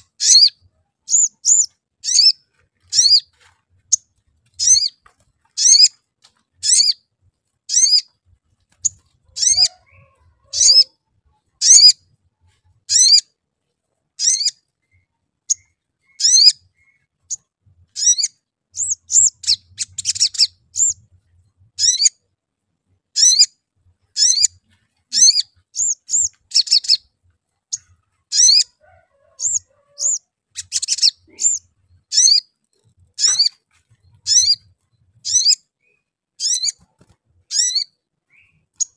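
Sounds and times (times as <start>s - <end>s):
rapid chattering bird trills: 8.8s - 10.9s, 29.4s - 35.6s
sunbird sharp high chirp: 14.2s - 17.1s.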